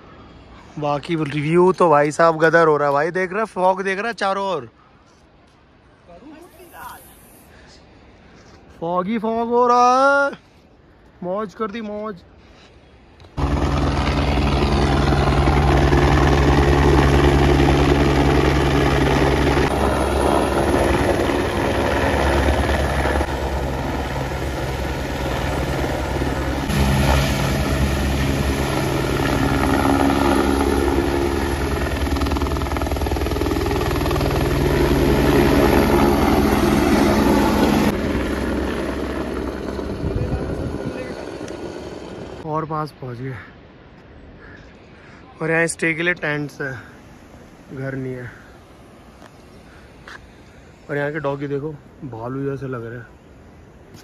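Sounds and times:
helicopter rotor thrum: 0:13.4 - 0:42.4.

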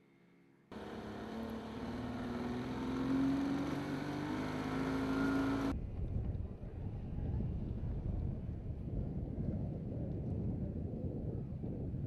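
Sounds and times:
motorboat engine running: 0:00.7 - 0:05.7
wind buffeting microphone: 0:05.7 - 0:12.0.

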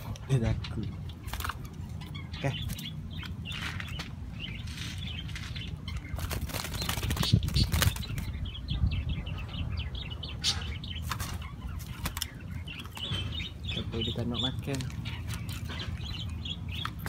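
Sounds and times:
bird flapping wings in cage: 0:06.2 - 0:08.3, 0:11.0 - 0:12.3.

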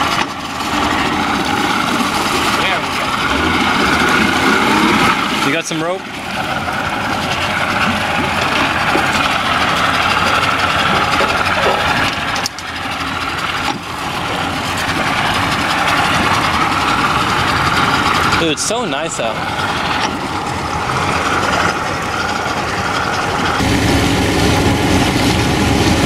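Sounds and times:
outboard motor idling: 0:00.0 - 0:26.0.

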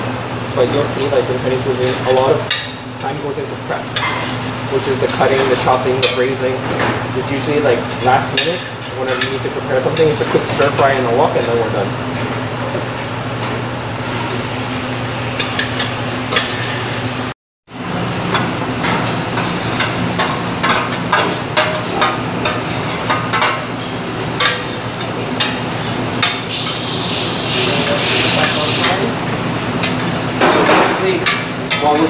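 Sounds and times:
vegetables sizzling in pan: 0:12.8 - 0:17.3, 0:21.3 - 0:30.4.

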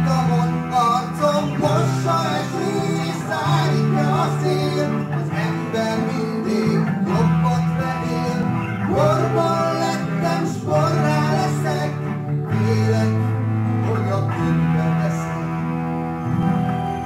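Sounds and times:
bending lead melody: 0:00.0 - 0:17.0
sustained organ chords: 0:00.0 - 0:17.0.

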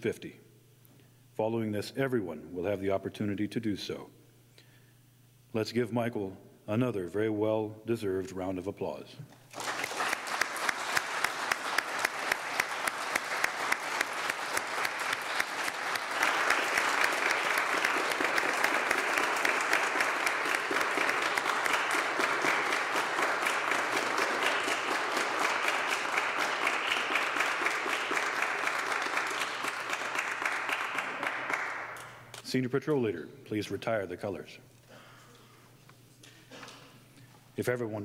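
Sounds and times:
audience applauding: 0:09.5 - 0:32.2.

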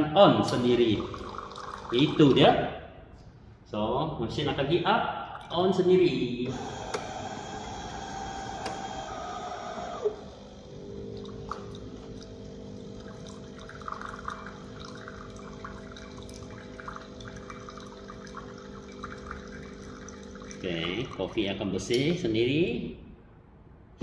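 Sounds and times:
pump hum: 0:00.5 - 0:02.4, 0:06.4 - 0:21.4
water trickling into glass: 0:00.5 - 0:02.4, 0:11.1 - 0:21.4
coffee machine rushing hiss: 0:06.5 - 0:15.9.

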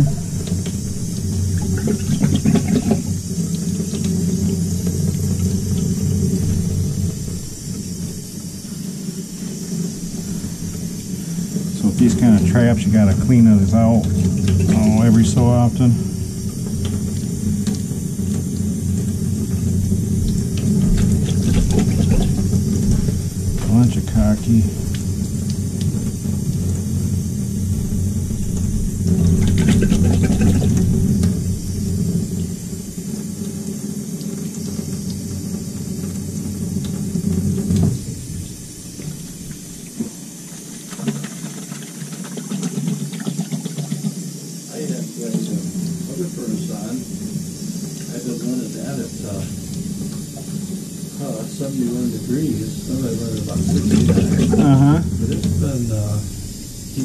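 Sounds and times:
tap water running into sink: 0:00.0 - 0:57.0.

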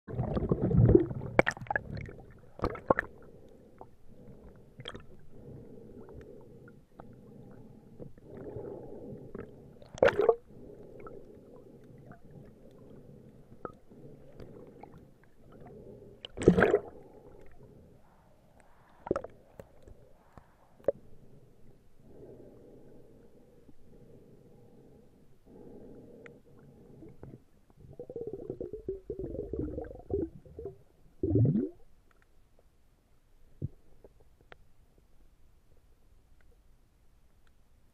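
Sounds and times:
air bubbles underwater: 0:00.1 - 0:03.3, 0:09.8 - 0:11.2, 0:16.3 - 0:17.4, 0:27.8 - 0:31.8.

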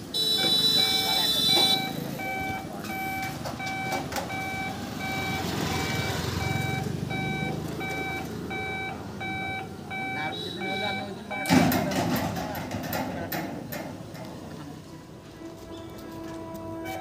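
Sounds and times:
level crossing electronic beeps: 0:00.8 - 0:11.7.

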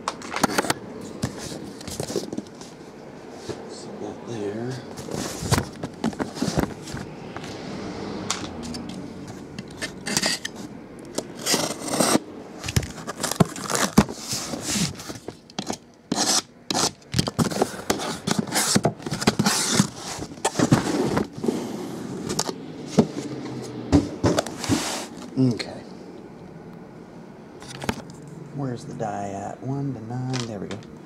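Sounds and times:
cardboard scraping and rubbing: 0:00.4 - 0:03.7, 0:04.9 - 0:07.6, 0:09.8 - 0:23.3, 0:24.0 - 0:25.3.

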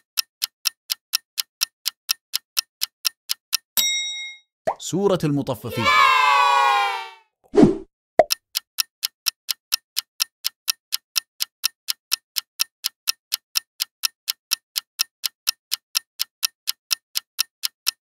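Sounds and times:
clock ticking: 0:00.0 - 0:03.8, 0:08.2 - 0:18.0.

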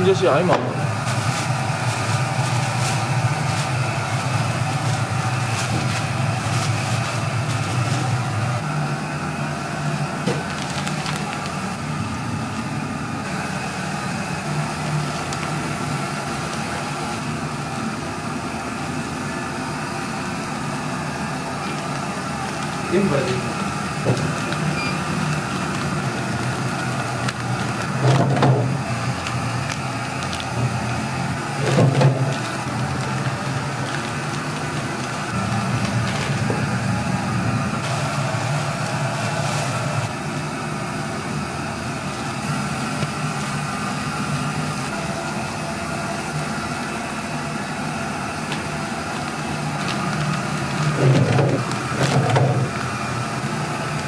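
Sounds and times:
packaging machine humming: 0:00.0 - 0:54.0.

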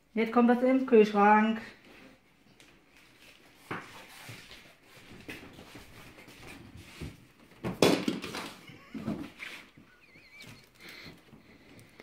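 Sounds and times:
plastic moulds knocking: 0:07.6 - 0:09.4.

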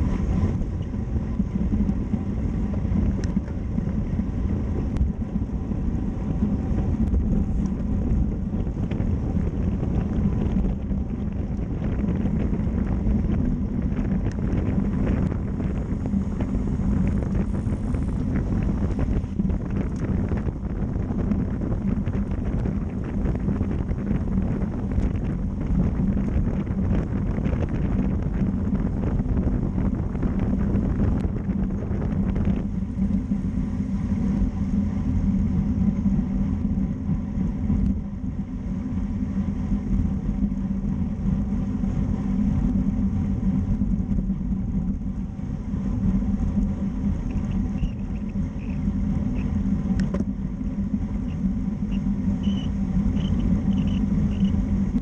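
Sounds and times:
bike tyres rumbling on pavement: 0:00.0 - 0:33.2
wind rushing over microphone: 0:00.0 - 0:55.0.

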